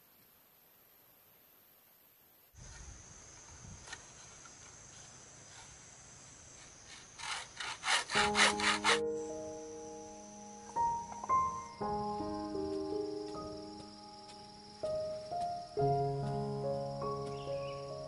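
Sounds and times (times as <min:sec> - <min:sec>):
faint background noise: 0:00.0 - 0:18.0
hand tool rasping strokes: 0:06.6 - 0:09.1
music: 0:08.2 - 0:18.0.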